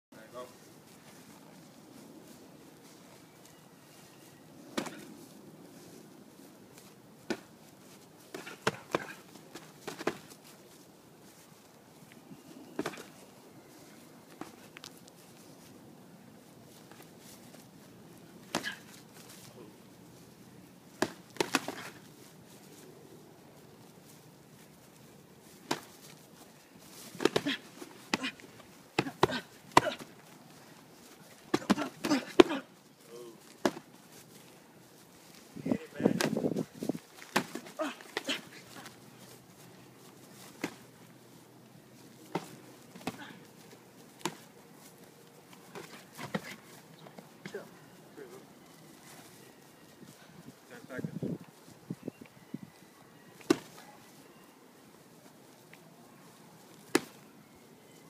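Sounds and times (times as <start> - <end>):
boxing gloves smacking: 7.2 - 7.5, 8.3 - 10.4, 21.0 - 22.0, 27.1 - 28.4, 33.6 - 33.8, 37.2 - 38.9, 53.4 - 53.8, 56.8 - 57.2.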